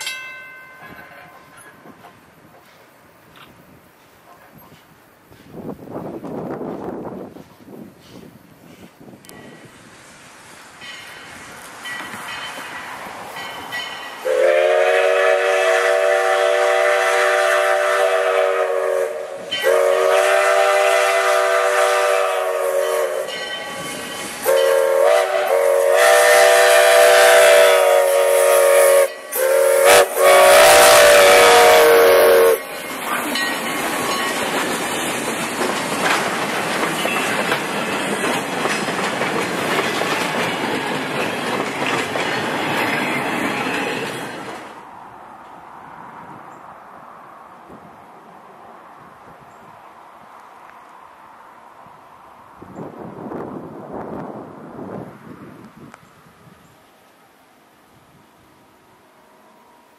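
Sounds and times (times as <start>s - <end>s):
train wheels clattering on rails: 10.8s - 14.3s, 32.4s - 44.8s
steam whistle blasts: 14.2s - 32.7s.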